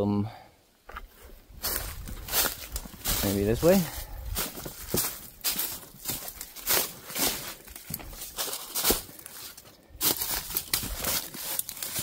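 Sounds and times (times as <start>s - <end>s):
footsteps crunching through dry leaves: 1.0s - 12.0s.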